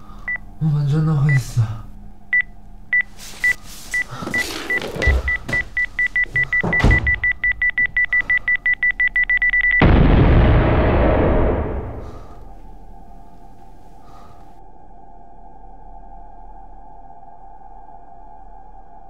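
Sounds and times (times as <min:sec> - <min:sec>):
timer beeping: 0:02.3 - 0:09.9
explosion: 0:09.8 - 0:12.6.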